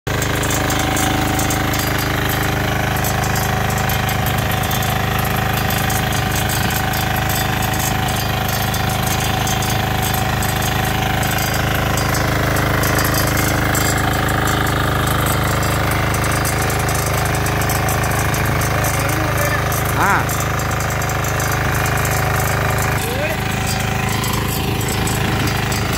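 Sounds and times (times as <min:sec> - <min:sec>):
tines churning soil: 0:00.0 - 0:25.9
weeder engine running: 0:00.0 - 0:25.9.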